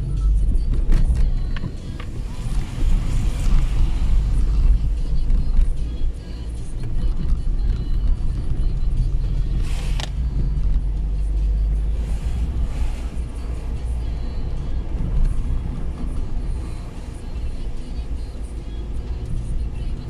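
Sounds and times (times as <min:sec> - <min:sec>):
car driving on wet road: 0:00.0 - 0:20.0
brief hiss: 0:09.6 - 0:10.2.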